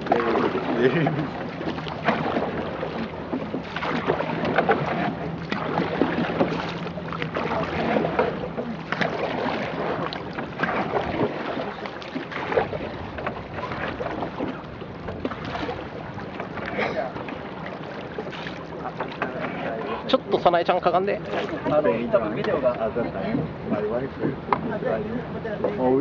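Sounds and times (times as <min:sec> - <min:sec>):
wind buffeting microphone: 0:00.0 - 0:20.5
paddle splashing water: 0:00.0 - 0:25.9.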